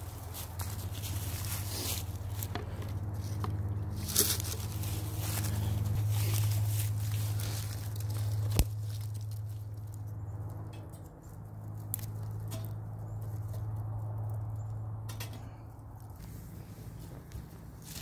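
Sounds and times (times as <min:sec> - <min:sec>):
low steady hum: 0:00.0 - 0:18.0
wood fire crackling and popping: 0:02.4 - 0:15.4.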